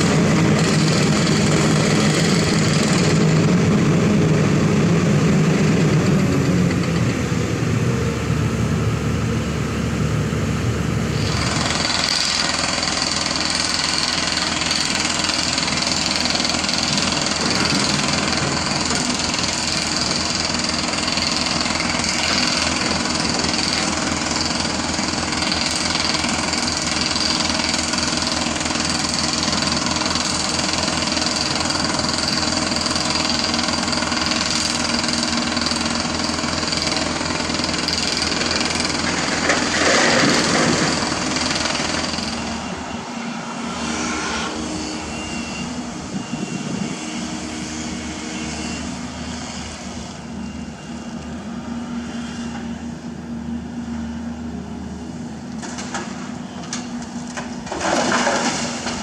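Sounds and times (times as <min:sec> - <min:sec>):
excavator diesel engines: 0:00.0 - 0:59.0.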